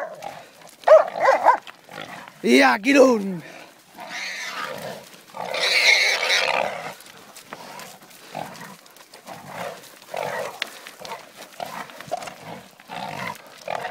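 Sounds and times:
boar grunting: 0.0s - 2.6s, 3.2s - 13.9s
wild boar squealing: 4.0s - 7.0s.

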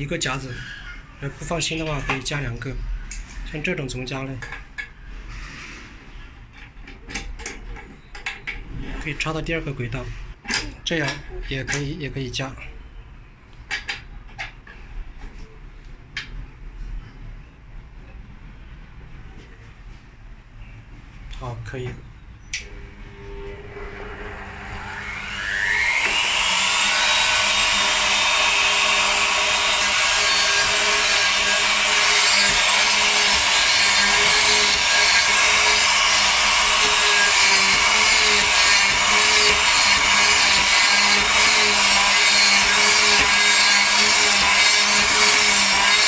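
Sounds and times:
router motor whining: 22.8s - 46.0s
router bit cutting wood: 22.9s - 46.0s.

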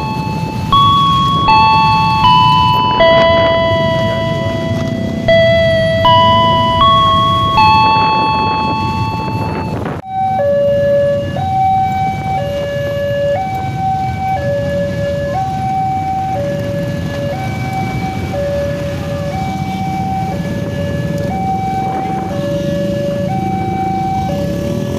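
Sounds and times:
electronic two-tone alarm: 0.0s - 24.9s
low rumble of road traffic: 0.0s - 24.9s
chime of struck notes: 0.8s - 9.8s.

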